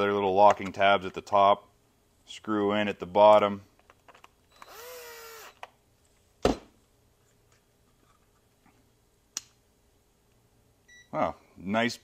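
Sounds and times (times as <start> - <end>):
cordless drill spinning: 4.5 - 5.7.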